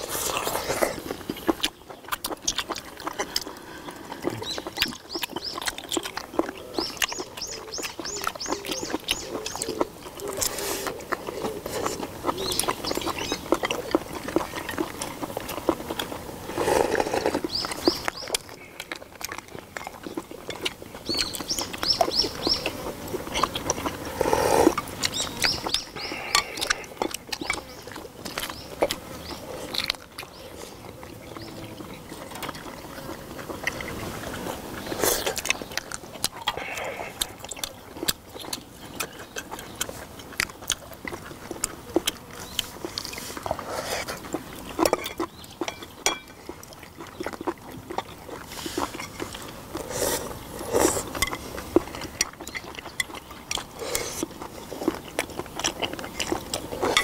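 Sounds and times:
chewing and smacking: 0.0s - 57.0s
loud slurp of broth: 16.4s - 17.5s, 24.0s - 24.8s, 49.8s - 51.2s.

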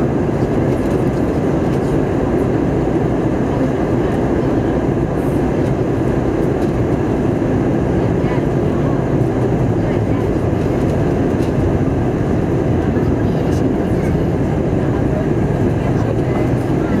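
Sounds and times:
jet engine and airflow cabin noise: 0.0s - 17.0s.

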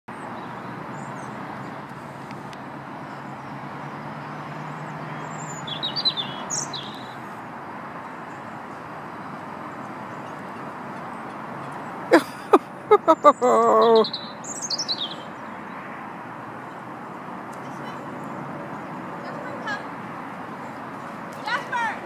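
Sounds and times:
outdoor background hiss: 0.2s - 22.0s
high bird chirps: 5.2s - 7.2s, 13.1s - 15.6s.

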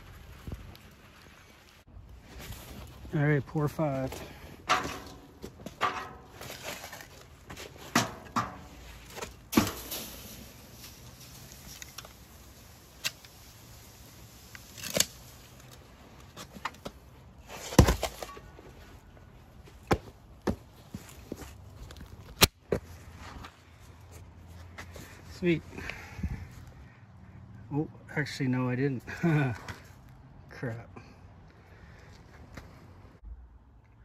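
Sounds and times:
metal containers clanking: 4.6s - 7.1s
hiss of running sand: 9.8s - 14.5s.

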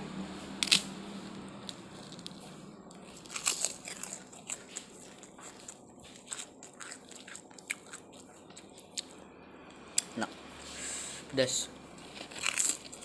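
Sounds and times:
chewing: 1.6s - 9.2s.

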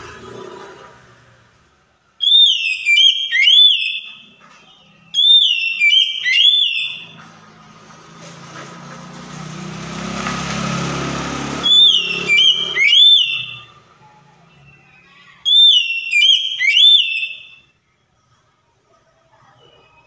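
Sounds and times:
bird whistling song: 2.2s - 7.2s, 11.6s - 13.8s, 14.5s - 17.7s.

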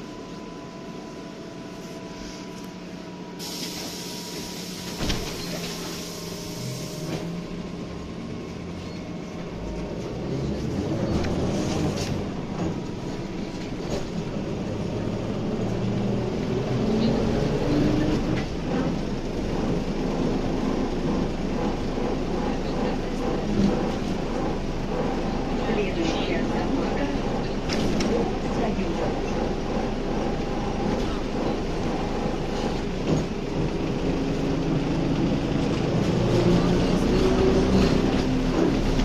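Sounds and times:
trolleybus electrical whine: 0.0s - 39.0s
air hiss: 3.4s - 5.0s.

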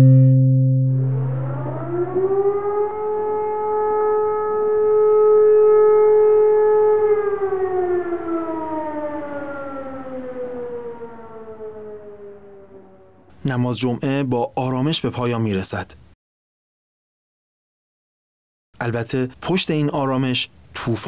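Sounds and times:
siren wailing: 0.0s - 13.4s.

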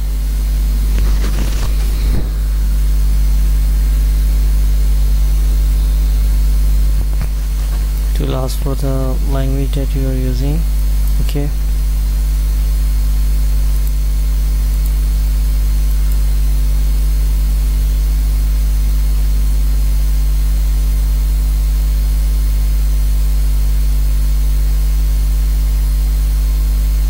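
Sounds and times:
steady hiss: 0.0s - 17.1s
electrical mains hum: 0.0s - 27.0s.

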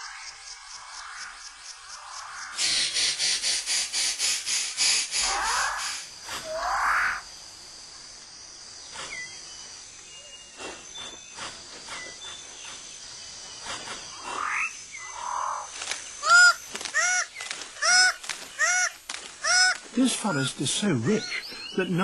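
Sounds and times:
small chirps and clicks: 15.1s - 22.0s.

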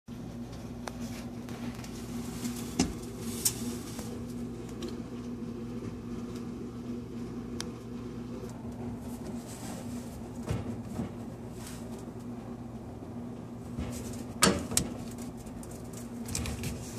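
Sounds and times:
electrical hum: 0.1s - 16.9s.

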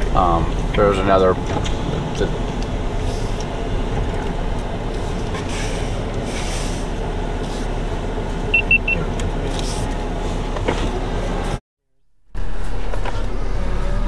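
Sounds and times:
vehicle rumble from inside cabin: 0.0s - 11.6s, 12.3s - 14.0s
quick high beeps: 8.5s - 9.0s.

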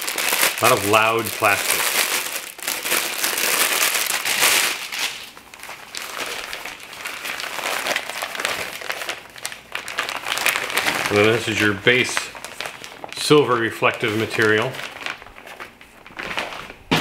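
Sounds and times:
plastic bag crinkling: 0.0s - 17.0s
fabric rustling: 14.0s - 17.0s.

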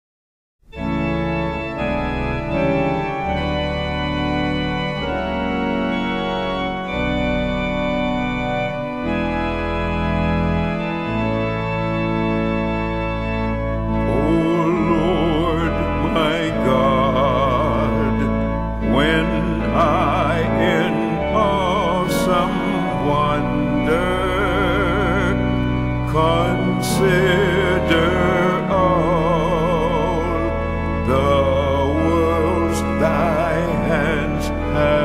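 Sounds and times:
high melody with strong vibrato: 0.7s - 35.0s
organ playing held chords: 0.7s - 35.0s.

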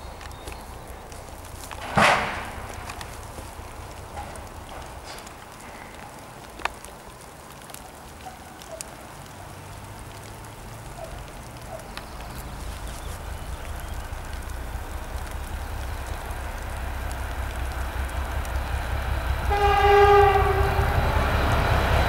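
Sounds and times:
light ticks: 0.0s - 19.5s
distant diesel locomotive rumble: 0.0s - 22.0s.

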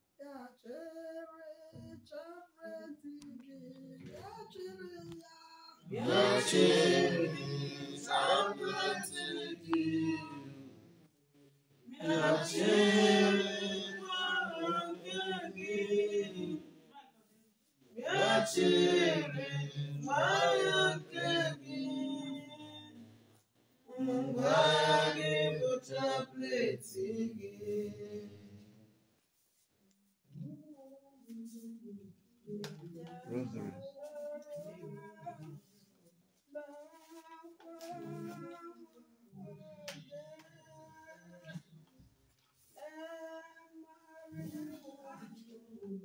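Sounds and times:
group of voices singing: 5.8s - 11.0s, 11.8s - 16.9s, 17.9s - 23.1s, 23.9s - 28.8s, 31.3s - 35.6s, 36.5s - 42.0s, 42.8s - 46.0s.

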